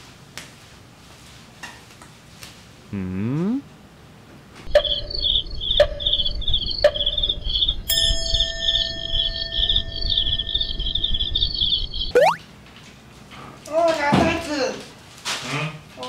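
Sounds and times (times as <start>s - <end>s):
crickets chirping: 4.7s - 12.4s
steady bell-like tone: 7.9s - 11.9s.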